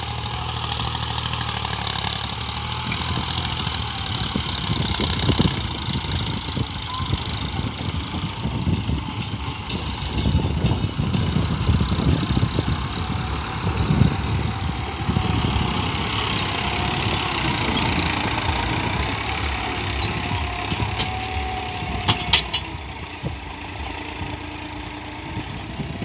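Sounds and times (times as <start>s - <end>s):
tractor diesel engine running: 0.0s - 26.0s.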